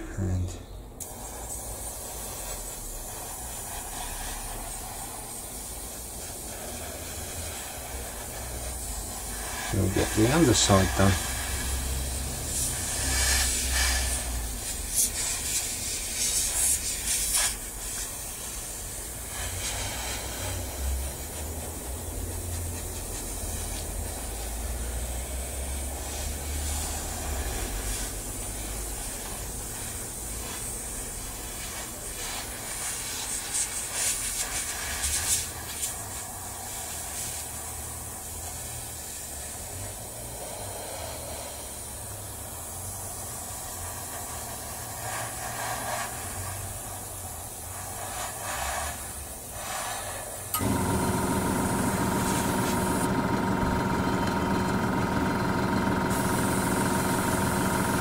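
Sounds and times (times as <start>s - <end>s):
airbrush hissing: 1.0s - 58.0s.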